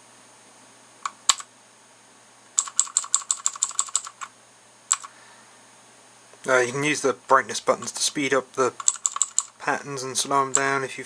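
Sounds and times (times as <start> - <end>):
mechanical keyboard keys clicking: 1.0 - 1.5, 2.6 - 4.3, 8.8 - 9.6.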